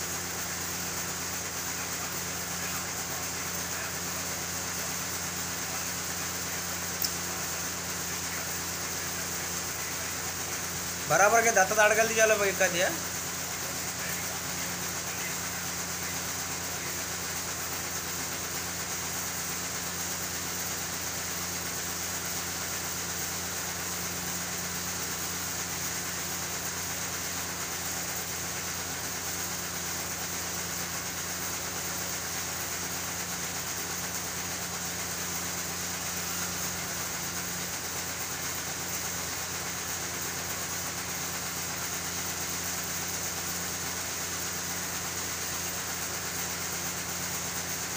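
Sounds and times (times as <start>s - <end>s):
constant hiss: 0.0s - 24.3s.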